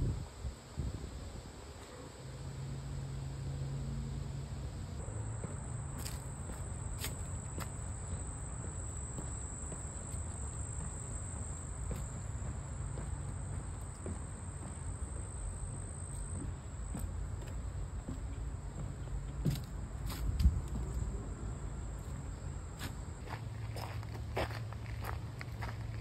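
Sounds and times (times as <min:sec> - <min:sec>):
insects trilling: 0:04.7 - 0:17.2.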